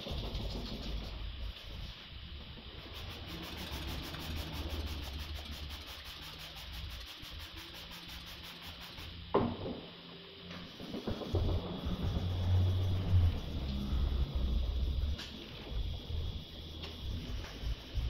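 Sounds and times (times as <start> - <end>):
sandpaper rubbing wet panel: 2.8 - 9.2.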